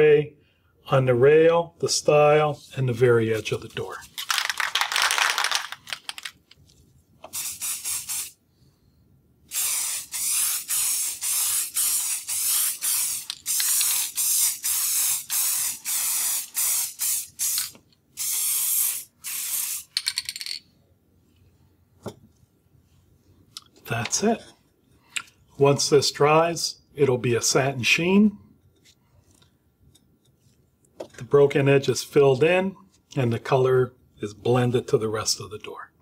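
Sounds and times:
aerosol can spraying: 7.3 - 8.4, 9.5 - 20.0.

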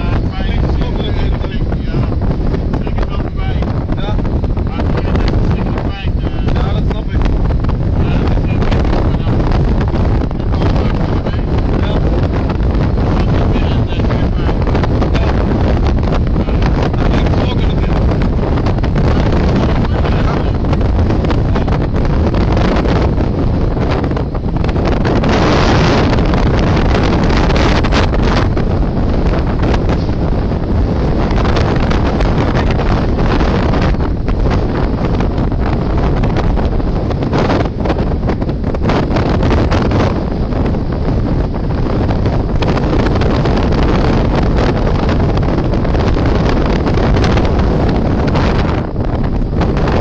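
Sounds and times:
rush of wind and sea: 0.0 - 50.0
wind buffeting microphone: 0.0 - 50.0.

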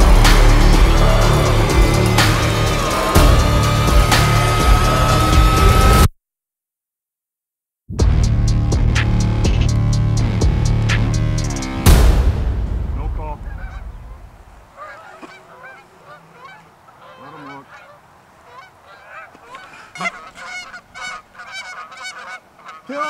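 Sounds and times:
geese honking: 0.0 - 6.0, 13.2 - 23.0
music track: 0.0 - 6.1.

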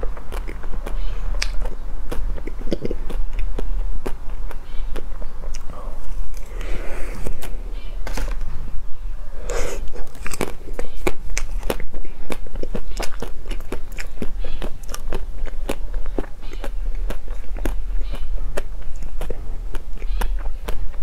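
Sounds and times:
ice cream coating crunching: 0.0 - 8.6, 9.4 - 21.0.

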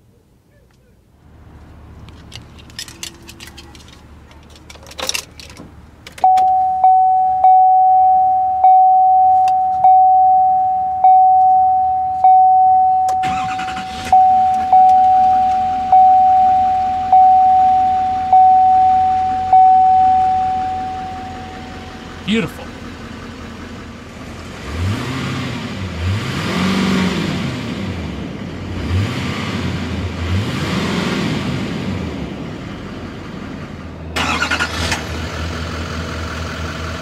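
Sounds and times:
diesel truck engine starting and idling: 1.1 - 37.0
electronic warning chime: 6.2 - 22.0.

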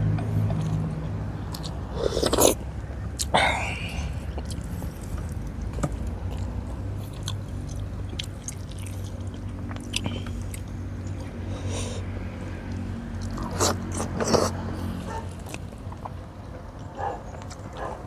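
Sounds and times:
chewing: 0.4 - 0.9, 1.5 - 2.6, 4.2 - 11.3, 12.7 - 18.0.

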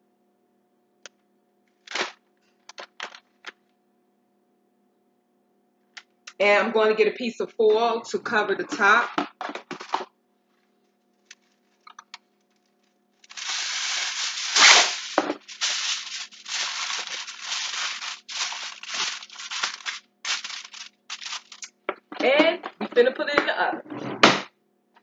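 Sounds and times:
aluminium foil tearing and crinkling: 1.9 - 2.2, 13.2 - 21.7.

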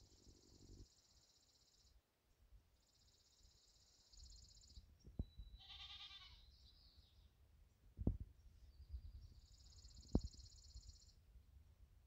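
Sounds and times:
bleat-like animal call: 5.6 - 6.5.

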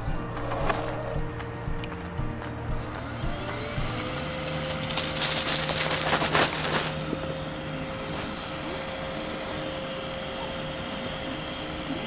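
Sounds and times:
electric air pump humming: 0.0 - 12.0
tent material rustling: 3.9 - 7.2.

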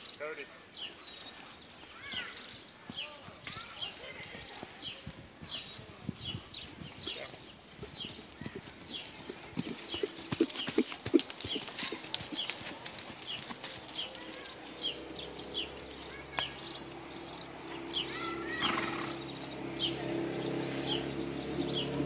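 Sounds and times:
small birds chirping: 0.0 - 22.0
horse hooves trotting on sand: 0.8 - 22.0.

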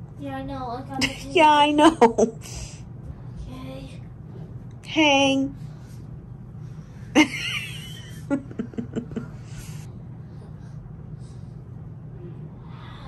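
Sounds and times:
person laughing: 7.2 - 9.4.

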